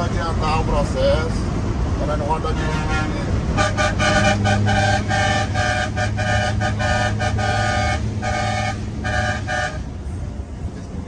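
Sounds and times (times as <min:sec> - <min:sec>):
truck engine drone: 0:00.0 - 0:11.0
truck horn blasts: 0:02.5 - 0:10.1.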